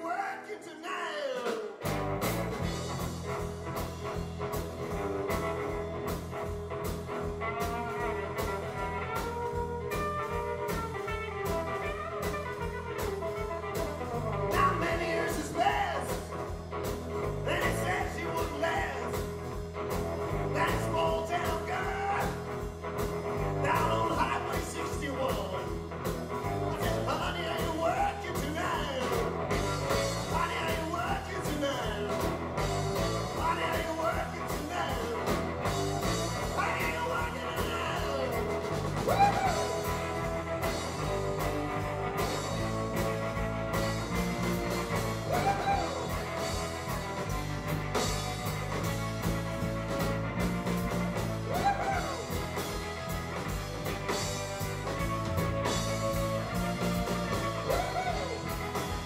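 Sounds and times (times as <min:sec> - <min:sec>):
blues-rock band playing: 0:01.3 - 0:59.0
lead instrument solo: 0:02.1 - 0:17.2, 0:35.0 - 0:59.0.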